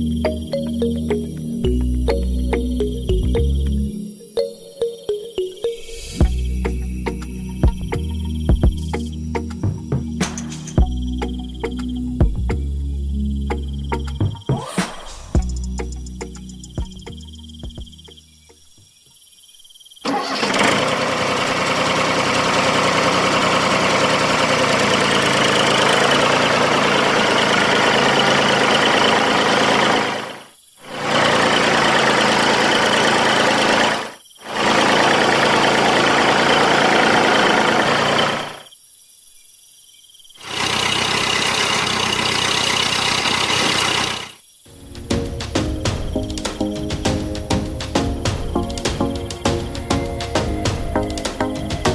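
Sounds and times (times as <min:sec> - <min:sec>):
motor running: 0:20.2 - 0:38.7, 0:40.4 - 0:44.4.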